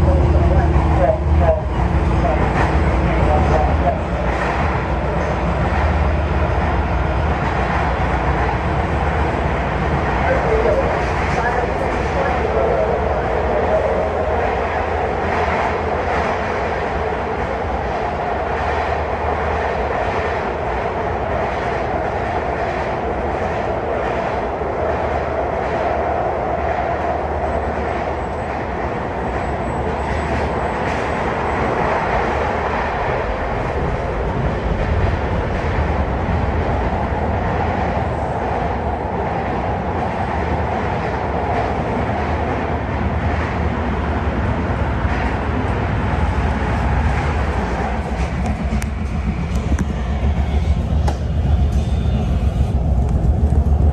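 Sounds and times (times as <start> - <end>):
train wheels and motors rumbling: 0.0 - 53.9.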